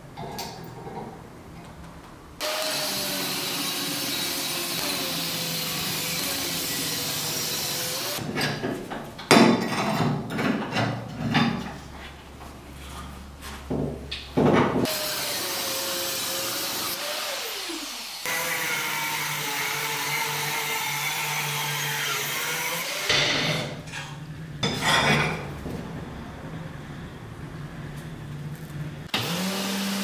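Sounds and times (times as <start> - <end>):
angle grinder cutting steel: 2.4 - 8.2, 14.9 - 23.7, 29.1 - 30.0.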